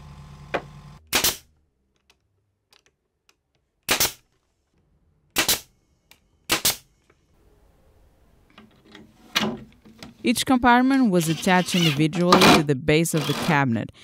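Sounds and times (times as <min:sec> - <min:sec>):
pneumatic nailer firing: 0:00.5 - 0:01.5, 0:03.9 - 0:04.2, 0:05.4 - 0:05.7, 0:06.5 - 0:06.8, 0:11.3 - 0:12.6.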